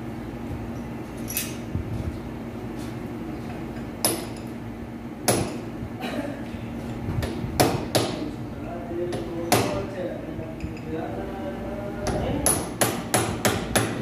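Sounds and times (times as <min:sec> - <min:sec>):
sharp metal knocks: 0:05.3 - 0:05.6, 0:12.1 - 0:14.0.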